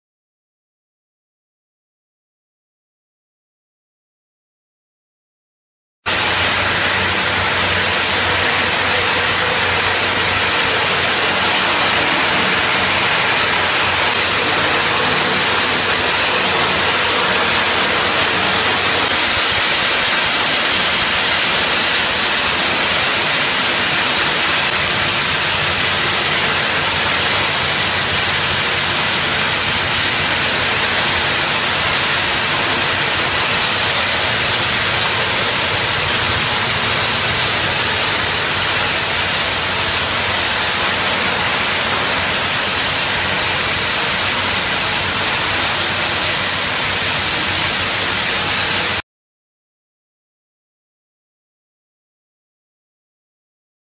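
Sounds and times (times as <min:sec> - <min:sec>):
scrap metal crusher rushing: 0:06.1 - 0:49.0.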